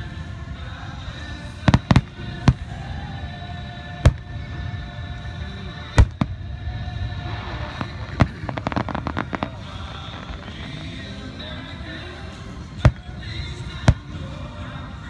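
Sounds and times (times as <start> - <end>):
fireworks bursting in sharp bangs: 1.5 - 3.0, 3.9 - 4.6, 5.8 - 11.6, 12.3 - 14.4.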